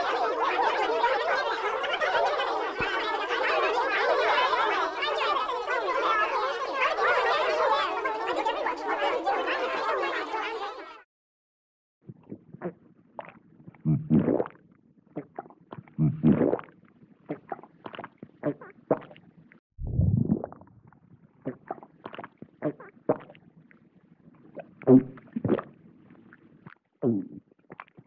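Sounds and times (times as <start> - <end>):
cartoon mouth sound effects: 12.1 - 14.6, 15.2 - 23.4, 24.6 - 25.7, 27.0 - 28.0.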